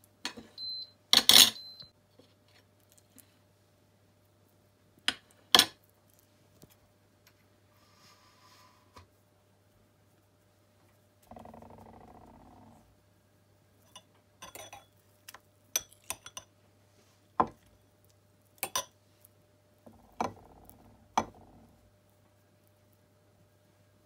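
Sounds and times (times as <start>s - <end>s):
fork clinking against glass bowl: 13.8s - 14.9s, 15.8s - 16.5s, 18.6s - 18.9s.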